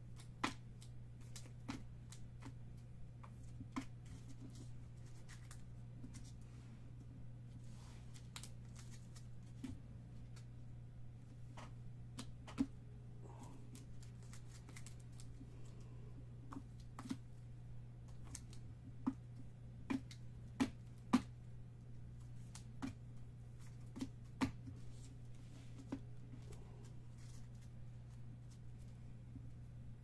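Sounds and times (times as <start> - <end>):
steady low hum: 0.0 - 30.0
cards clicking and tapping: 0.1 - 6.3, 8.1 - 10.5, 13.7 - 15.4, 16.4 - 17.3, 18.0 - 21.4, 22.2 - 25.0.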